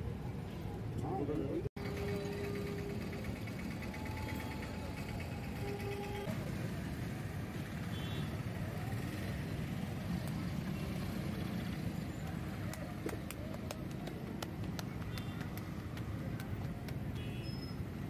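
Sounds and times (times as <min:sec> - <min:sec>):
road traffic rumble: 0:00.0 - 0:18.0
sharp clicks and taps: 0:12.7 - 0:17.2.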